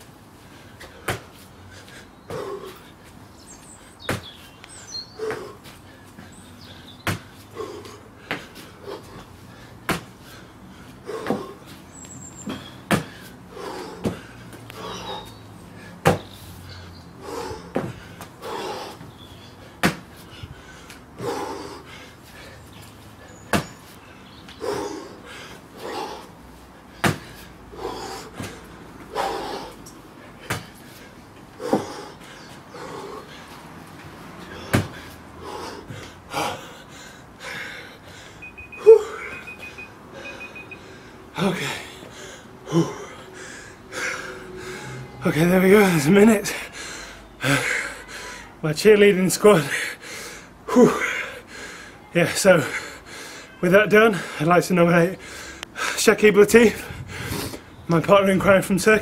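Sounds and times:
heavy breathing: 0.4s - 4.1s, 4.8s - 48.6s, 49.5s - 57.8s
hands and feet slapping ground: 0.8s - 3.2s, 4.0s - 6.3s, 7.0s - 10.2s, 11.2s - 13.3s, 16.0s - 16.3s, 19.8s - 21.4s, 22.8s - 24.6s, 26.9s - 29.1s, 29.8s - 30.8s, 33.8s - 35.1s.

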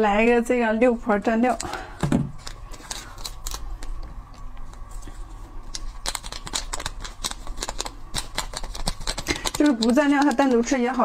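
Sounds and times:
plastic sachet crinkling: 2.4s - 4.9s, 5.7s - 10.7s.

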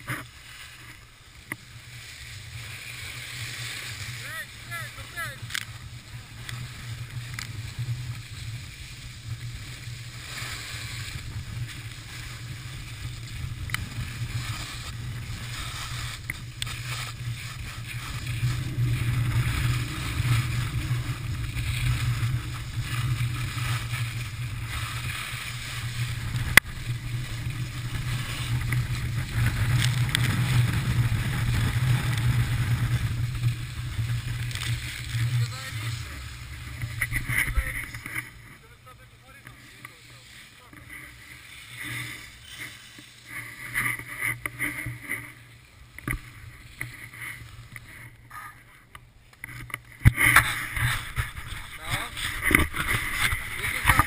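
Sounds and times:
wind rumbling on microphone: 0.0s - 48.7s, 49.4s - 54.0s
skis carving on packed snow: 0.0s - 54.0s.

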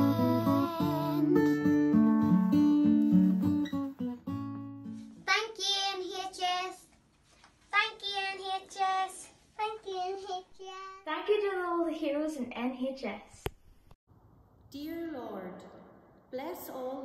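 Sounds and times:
child singing: 0.0s - 1.4s
acoustic guitar notes: 0.0s - 6.0s.

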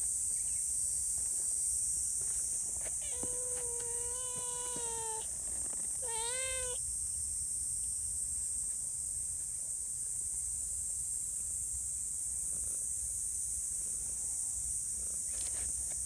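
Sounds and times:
high insect drone: 0.0s - 16.0s
cat meowing: 3.0s - 5.3s, 6.0s - 6.8s.

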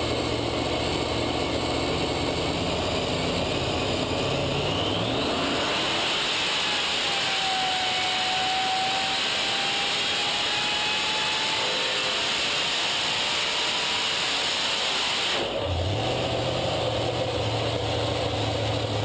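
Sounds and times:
engine running at full throttle: 0.0s - 19.0s.

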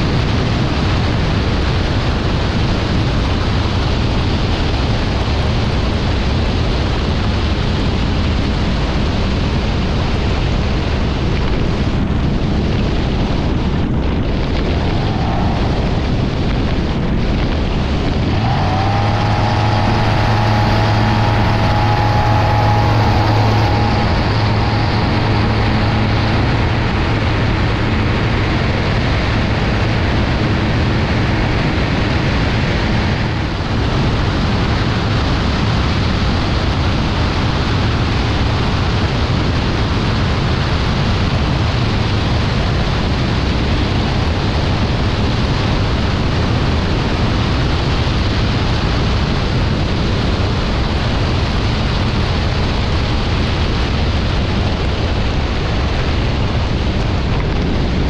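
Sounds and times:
light aircraft engine and propeller: 0.0s - 58.0s
wind rushing: 11.7s - 40.0s.

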